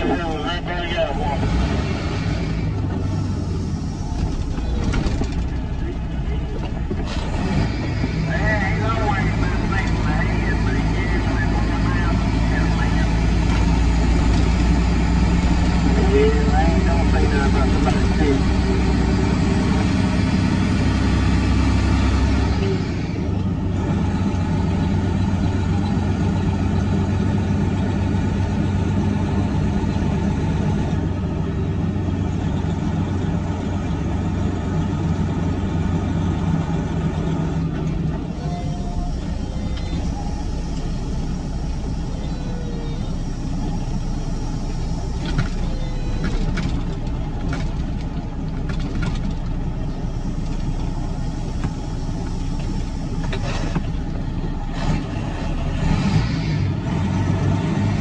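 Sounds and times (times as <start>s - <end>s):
diesel truck engine running: 0.0s - 58.0s.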